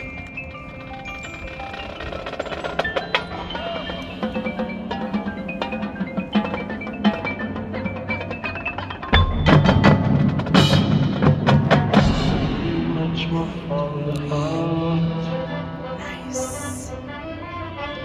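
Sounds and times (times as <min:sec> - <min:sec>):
mallet percussion notes: 0:00.0 - 0:13.0
marching band music: 0:00.0 - 0:16.9
heavy drum hits: 0:09.2 - 0:13.7.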